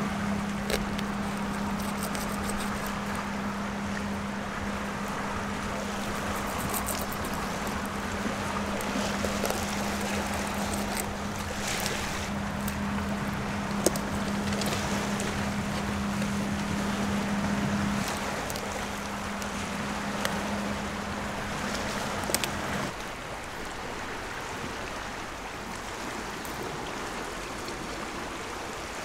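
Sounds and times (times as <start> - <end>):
steady low hum: 0.0 - 24.4
river water rushing: 0.0 - 29.0
scissors snipping through fish: 0.6 - 3.0, 5.8 - 7.9, 8.8 - 12.0.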